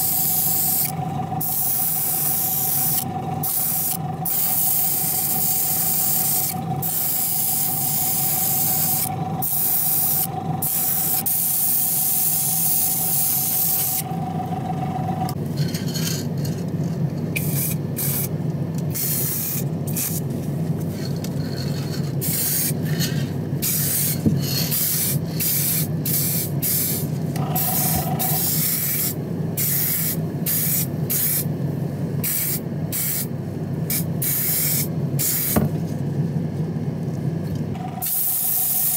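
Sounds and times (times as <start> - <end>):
paint spray gun hissing: 0.0 - 14.0, 24.8 - 31.4, 38.0 - 38.9
steady low hum: 0.0 - 38.9.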